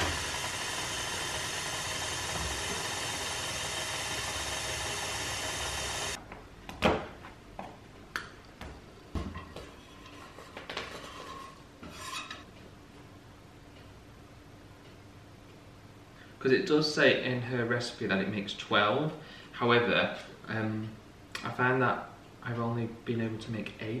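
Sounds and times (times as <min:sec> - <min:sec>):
stand mixer running: 0:00.0 - 0:06.2.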